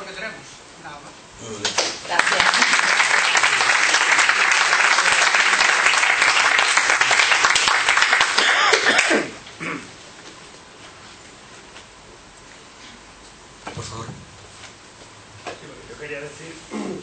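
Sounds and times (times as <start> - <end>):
audience applause: 1.6 - 9.3.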